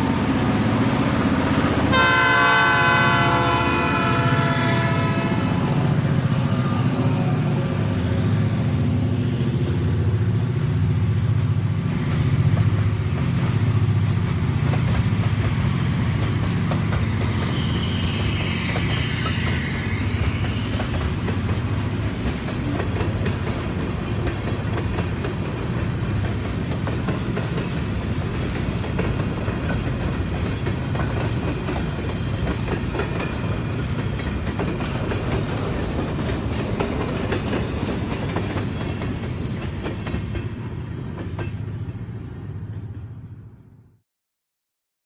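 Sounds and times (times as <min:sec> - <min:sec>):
train wheels clacking over rail joints: 0:11.2 - 0:42.0.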